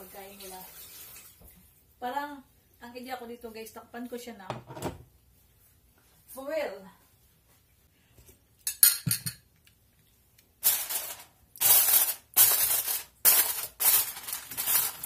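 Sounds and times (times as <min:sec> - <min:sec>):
glass clink: 0:08.7 - 0:09.4
aluminium foil crinkling: 0:10.6 - 0:15.0.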